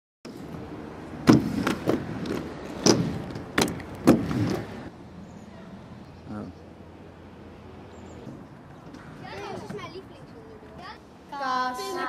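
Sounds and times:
skateboard wheels rolling: 1.2s - 4.9s.

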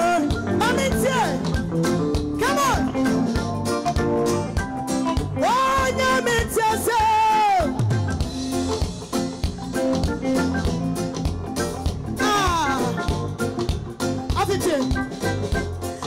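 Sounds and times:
gospel band playing: 0.0s - 16.0s.

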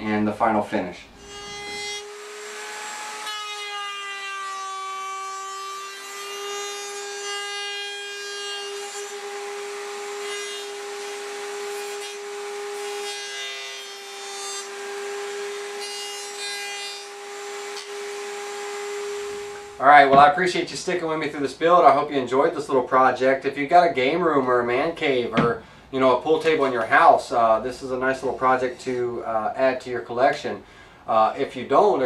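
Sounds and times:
router whining while cutting wood: 1.2s - 19.8s.

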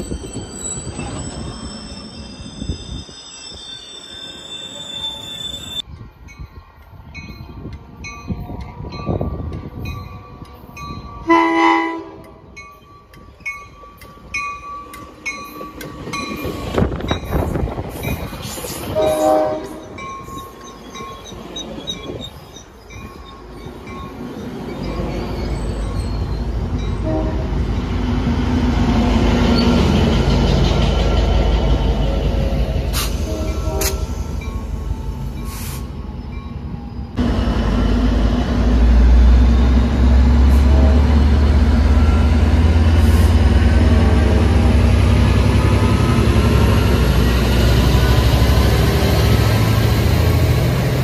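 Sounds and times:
train horn: 11.2s - 12.4s, 18.9s - 19.9s, 27.0s - 27.7s, 33.1s - 34.2s, 40.5s - 41.3s
train wheels rolling on rails: 12.2s - 51.0s
diesel locomotive rumble: 14.2s - 51.0s.

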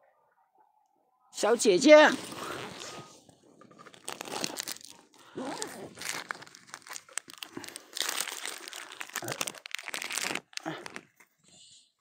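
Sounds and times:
plastic bag crinkling: 2.1s - 11.4s.

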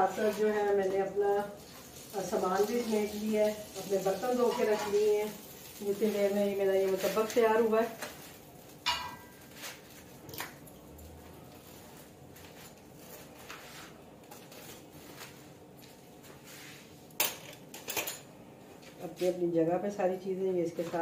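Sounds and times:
metal utensil clinking on plate: 8.9s - 9.4s.

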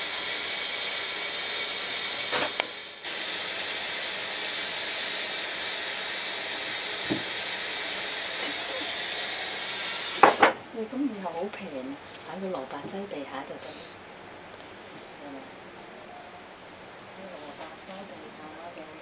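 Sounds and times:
steady hiss: 0.0s - 11.8s.

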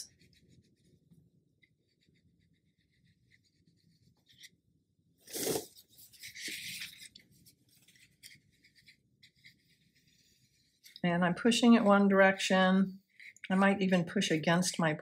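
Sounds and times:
brush scratching on paper: 0.0s - 4.6s, 5.2s - 14.0s
paper tissue rustling: 5.2s - 11.0s.

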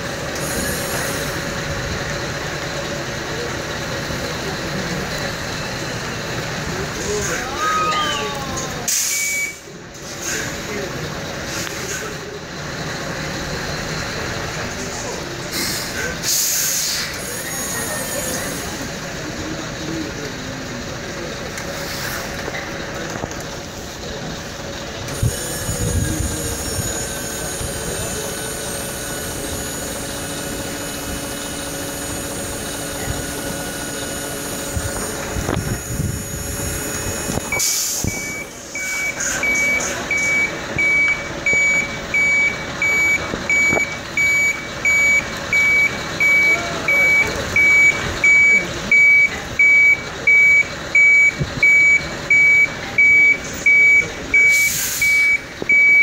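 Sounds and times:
truck diesel engine running: 0.0s - 56.0s
reversing alarm beeps: 9.0s - 9.7s, 37.4s - 56.0s.

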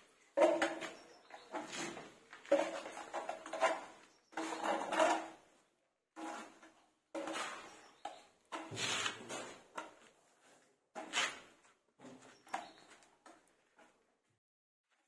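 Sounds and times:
putty blade scraping wall: 0.4s - 5.4s, 6.2s - 10.0s.

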